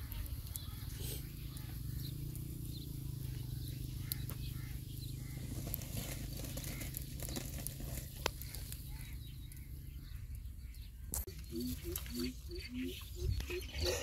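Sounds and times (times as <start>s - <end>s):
wood fire crackling: 0.0s - 10.4s
low steady rumble: 0.0s - 11.1s.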